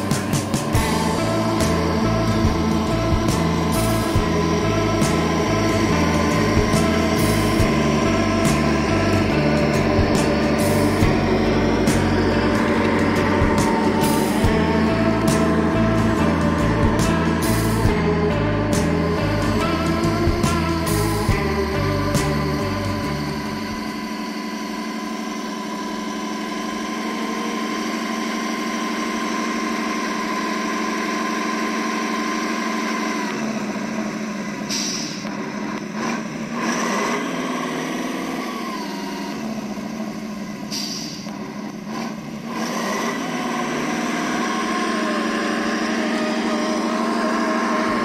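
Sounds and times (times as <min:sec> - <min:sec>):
simulated diesel engine from speaker: 0:00.0 - 0:48.0
short high hisses: 0:34.7 - 0:35.2, 0:40.7 - 0:41.3.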